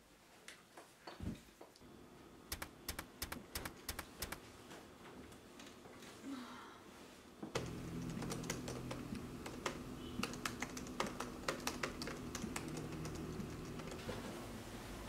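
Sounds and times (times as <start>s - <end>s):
laptop keyboard typing: 2.5s - 4.4s, 7.6s - 14.1s.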